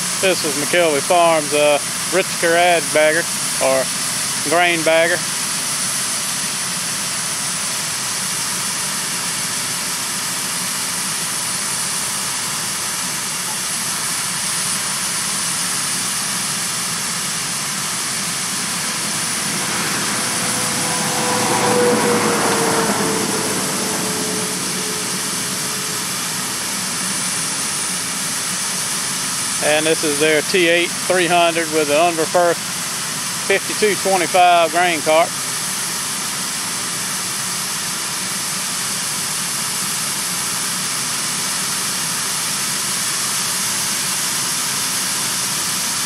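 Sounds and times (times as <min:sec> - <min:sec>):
mechanical whine: 0:00.0 - 0:35.7
tractor engines running: 0:00.0 - 0:46.0.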